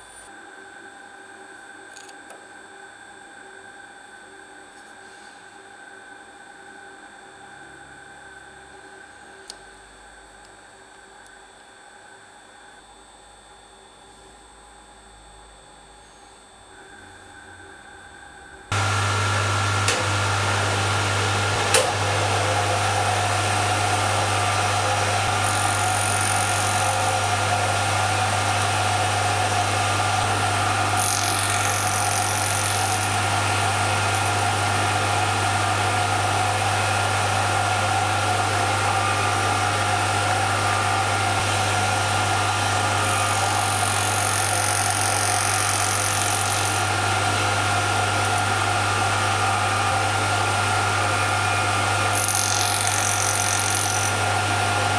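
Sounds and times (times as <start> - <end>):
milling machine motor whine: 0.0 - 54.9
cutter hissing on brass: 24.3 - 35.0, 42.2 - 48.5, 52.1 - 54.2.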